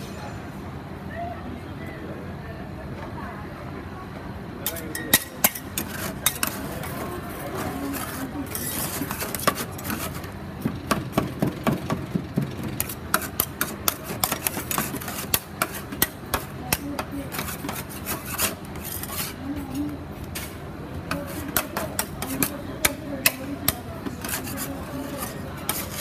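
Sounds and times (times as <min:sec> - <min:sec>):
metal spatulas clacking on plate: 0:04.7 - 0:07.0
spatulas scraping steel plate: 0:04.7 - 0:10.3, 0:12.7 - 0:26.0.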